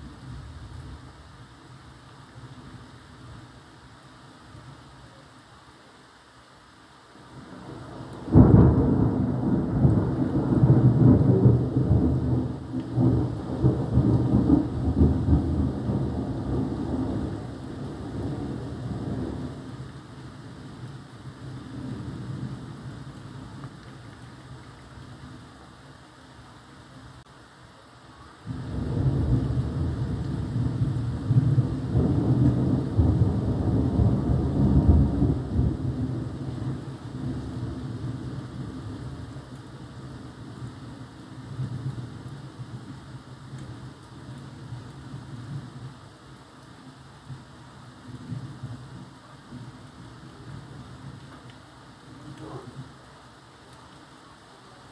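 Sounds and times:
rain falling: 0.0 - 54.9
thunder rumbling: 7.5 - 19.9, 28.5 - 45.8.

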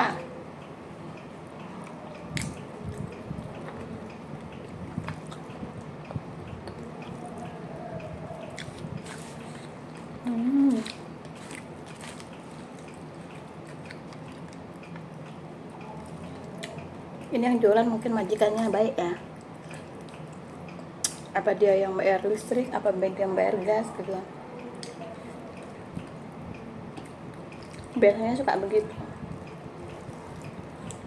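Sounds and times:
chewing and wet mouth clicks: 1.8 - 10.1, 19.4 - 21.3, 27.0 - 28.0
person humming: 10.2 - 11.0.

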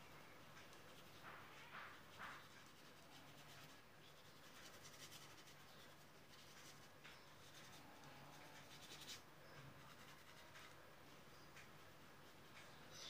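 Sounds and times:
low steady hum: 0.0 - 13.0
paintbrush scratchy strokes: 0.7 - 10.8.

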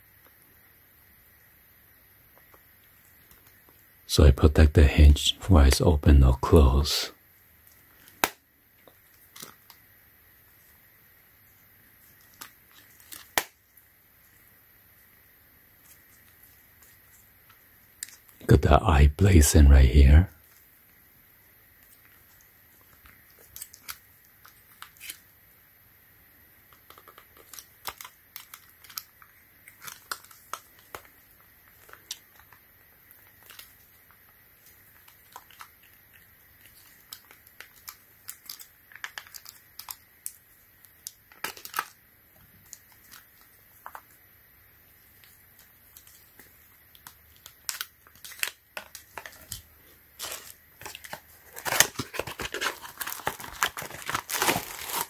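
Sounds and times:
packaging rustling and crinkling: 12.0 - 13.8, 26.7 - 44.2, 45.0 - 55.0.

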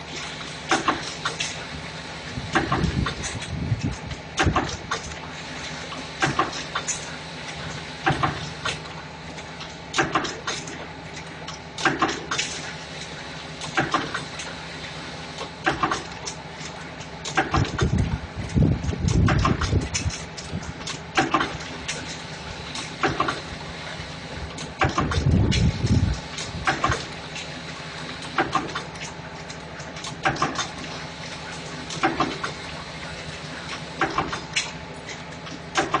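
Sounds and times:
steady machine hum: 0.0 - 36.0
spot welder metallic clacks: 0.1 - 1.7, 2.5 - 5.2, 5.9 - 14.6, 15.4 - 23.6, 24.6 - 36.0.

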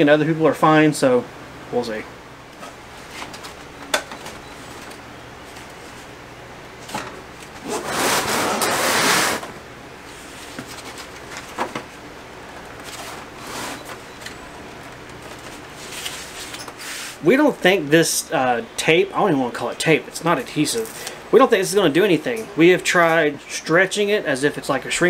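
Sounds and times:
loud rustle: 7.6 - 9.5.

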